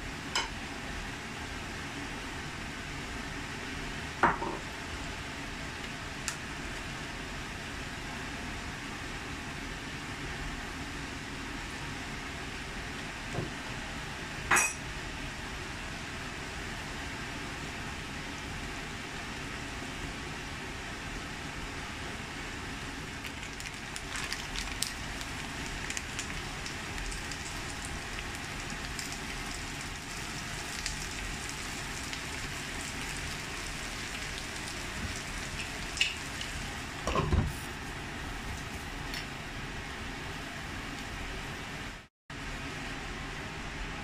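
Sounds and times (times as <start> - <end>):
food sizzling in oil: 23.2 - 37.0.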